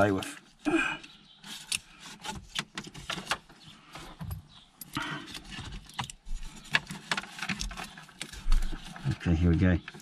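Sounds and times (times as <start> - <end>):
wiring clicks and rustles: 4.2 - 10.0.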